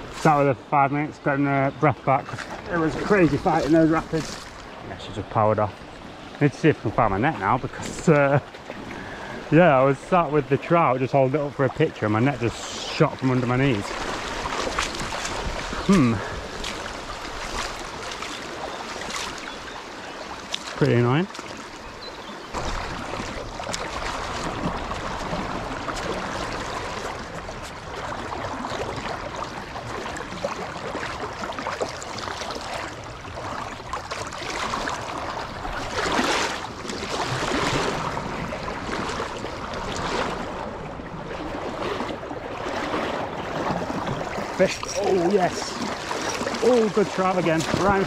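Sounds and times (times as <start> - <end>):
river water rushing over rapids: 34.4 - 48.0.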